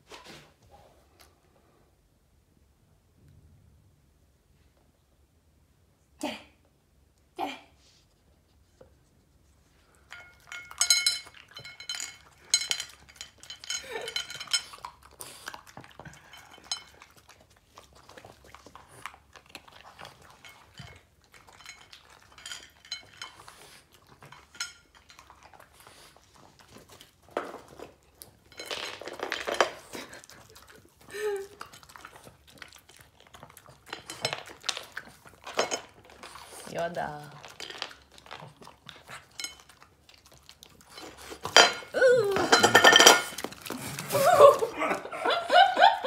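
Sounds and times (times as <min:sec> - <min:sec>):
ceramic plate clinking on floor: 0:10.1 - 0:14.9, 0:20.3 - 0:25.3, 0:28.5 - 0:30.0, 0:35.4 - 0:36.2, 0:40.9 - 0:43.7.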